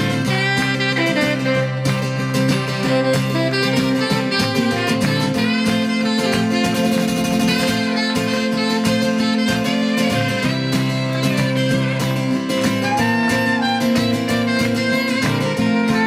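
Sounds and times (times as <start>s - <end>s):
strummed acoustic guitar: 0.0s - 16.0s
tenor saxophone melody: 0.0s - 16.0s.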